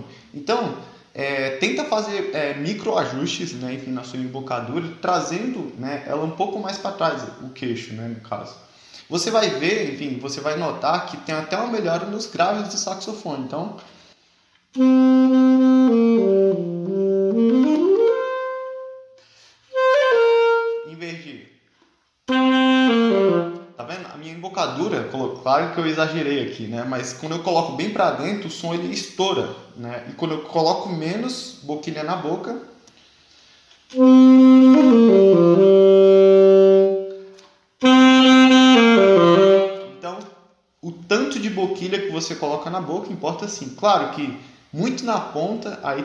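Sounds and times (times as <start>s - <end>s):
alto saxophone playing: 14.7s - 21.0s, 22.3s - 23.8s, 33.9s - 40.0s.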